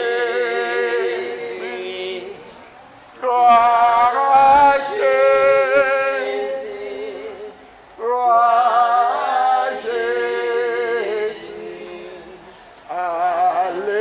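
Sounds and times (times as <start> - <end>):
man singing unaccompanied: 3.2 - 14.0.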